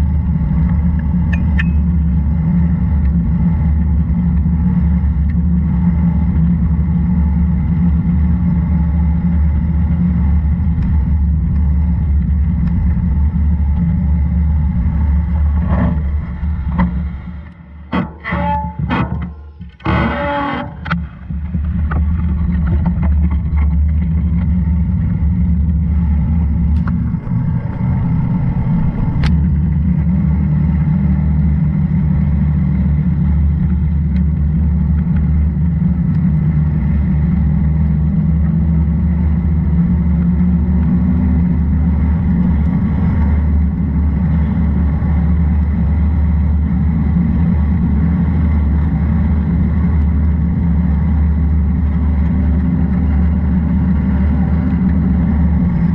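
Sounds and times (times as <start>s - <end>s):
road noise on wet road: 0.0s - 55.9s
wind buffeting microphone: 21.3s - 55.9s.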